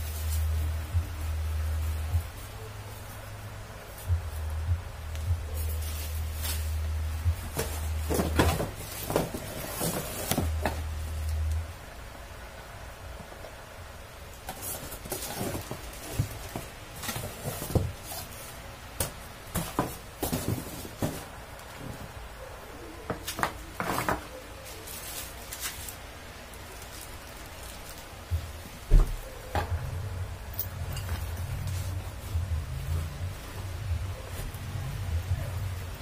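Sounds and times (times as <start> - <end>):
plastic wrapping crinkling: 5.5 - 11.6, 14.5 - 18.6, 23.3 - 28.8.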